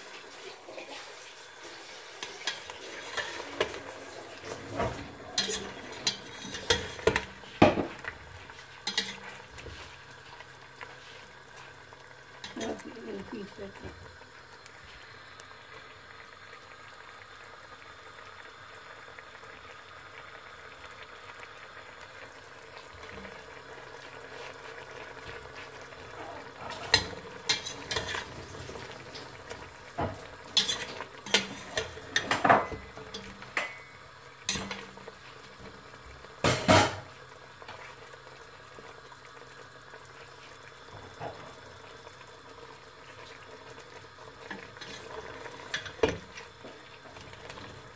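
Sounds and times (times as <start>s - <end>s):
sauce bubbling in a pot: 0.0s - 47.9s
metal spatula scraping a pot: 2.2s - 7.3s, 8.8s - 9.8s, 26.2s - 28.3s, 30.5s - 32.4s, 44.8s - 46.0s.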